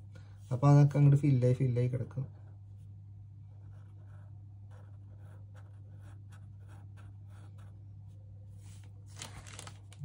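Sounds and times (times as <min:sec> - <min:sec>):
steady low hum: 0:00.0 - 0:09.2
pen scratching on paper: 0:03.5 - 0:07.8.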